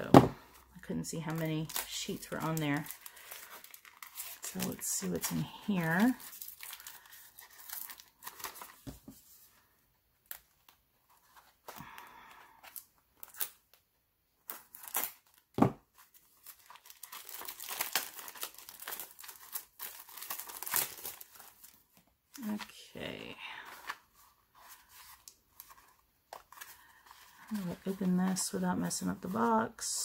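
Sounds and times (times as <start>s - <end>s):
plastic wrap crinkling: 0.7s - 8.9s, 14.4s - 30.0s.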